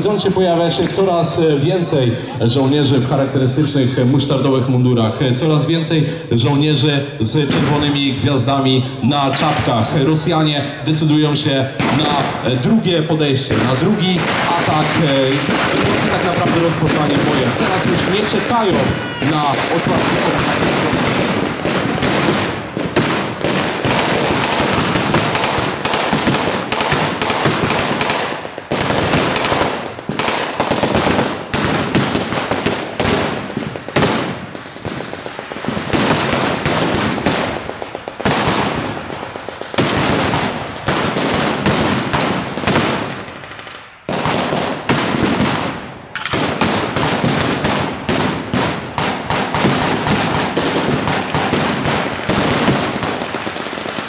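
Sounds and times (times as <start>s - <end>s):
rifle shots: 11.3s - 54.0s.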